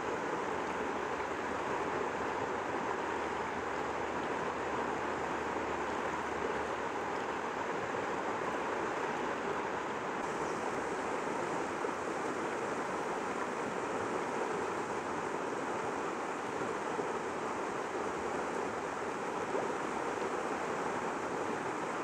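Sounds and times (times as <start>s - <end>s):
stream rushing over rocks: 0.0s - 22.0s.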